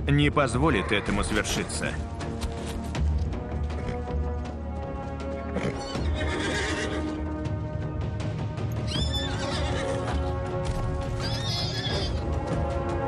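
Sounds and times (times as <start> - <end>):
dramatic orchestral music: 0.0 - 13.0
horses squealing and neighing: 5.2 - 7.2, 8.7 - 12.6.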